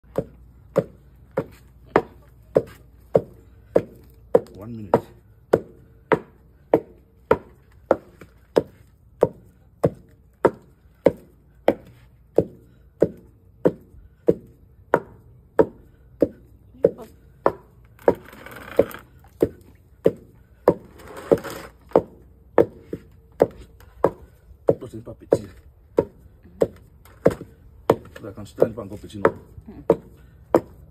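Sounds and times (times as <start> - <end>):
wooden pestle pounding in mortar: 0.0 - 30.9.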